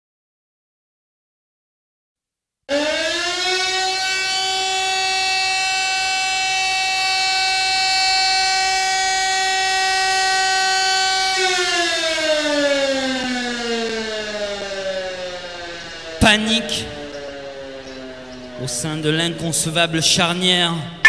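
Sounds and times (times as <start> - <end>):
siren wailing: 2.7 - 19.7.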